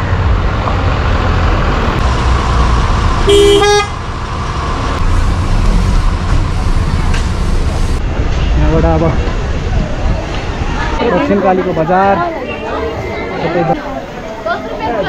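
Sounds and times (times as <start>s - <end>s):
traffic rumble: 0.0s - 15.0s
wind: 0.0s - 15.0s
vehicle horn honk: 3.3s - 4.0s.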